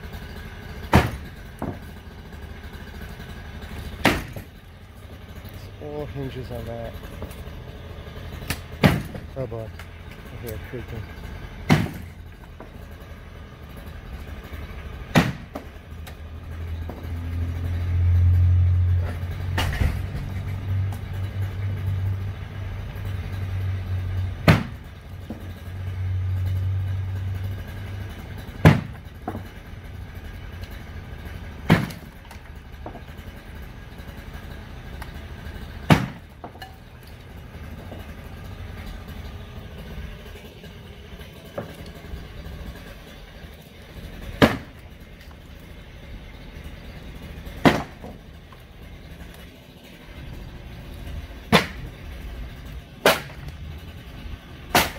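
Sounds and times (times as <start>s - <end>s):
heavy machine engine drone: 0.0s - 54.9s
loud cracks and crashes: 53.0s - 53.9s.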